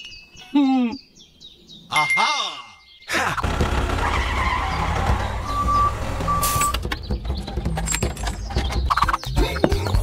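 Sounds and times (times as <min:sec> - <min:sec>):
tractor engine running: 0:03.4 - 0:09.1
reversing alarm beeps: 0:05.5 - 0:06.8.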